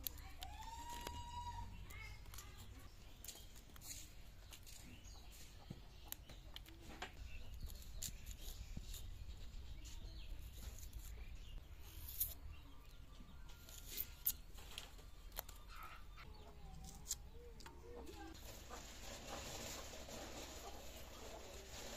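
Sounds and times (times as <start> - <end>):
onion being peeled and cut: 6.1 - 15.9, 16.6 - 17.8.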